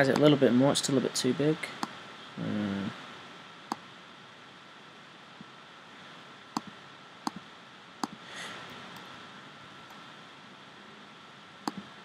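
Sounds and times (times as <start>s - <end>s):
steady low hiss: 0.0s - 12.0s
computer mouse clicking: 6.6s - 7.4s, 8.0s - 8.2s, 11.6s - 11.9s.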